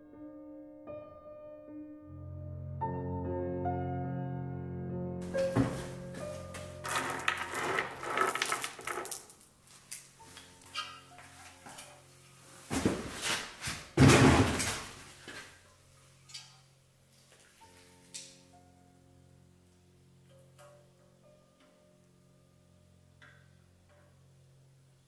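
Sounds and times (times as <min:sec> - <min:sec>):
soft piano music: 0:00.0 - 0:06.9, 0:10.1 - 0:12.6, 0:15.6 - 0:25.0
metallic knocks and clatter: 0:05.3 - 0:09.4
metal bolts clinking on wood: 0:06.8 - 0:09.4.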